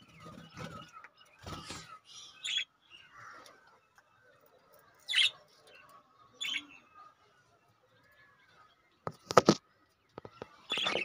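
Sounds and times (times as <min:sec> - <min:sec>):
budgerigar soft chatter: 0:00.0 - 0:08.8.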